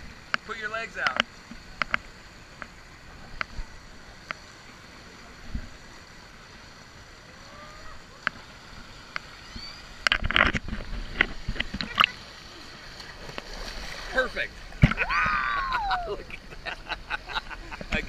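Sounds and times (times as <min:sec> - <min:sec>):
pool water lapping and sloshing: 0:00.0 - 0:18.0
small splashes and drips: 0:07.4 - 0:16.5.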